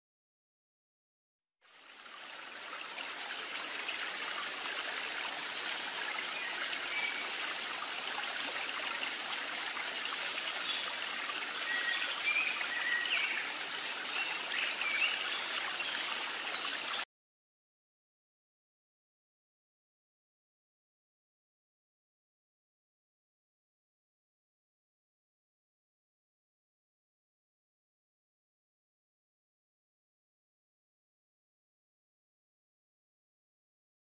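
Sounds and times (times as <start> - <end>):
water trickling: 1.6 - 17.0.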